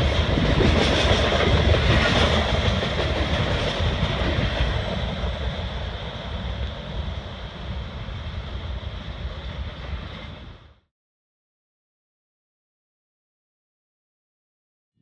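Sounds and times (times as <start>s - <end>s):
freight train rolling past: 0.0s - 10.8s.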